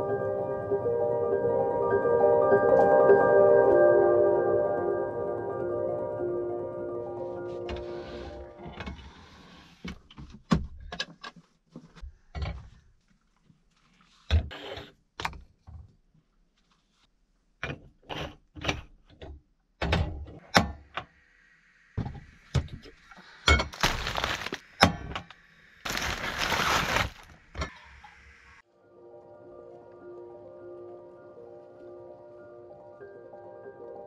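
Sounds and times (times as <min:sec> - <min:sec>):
plastic bread bag crinkling: 0:23.7 - 0:24.7, 0:25.9 - 0:27.5.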